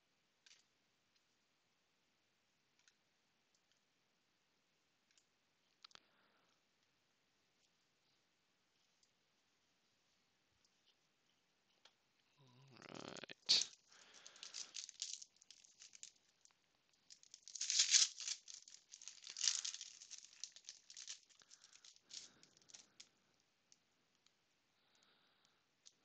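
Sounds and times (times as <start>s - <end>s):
cards rustling: 13.5s - 23.0s
foil wrapper crinkling and tearing: 13.5s - 23.0s.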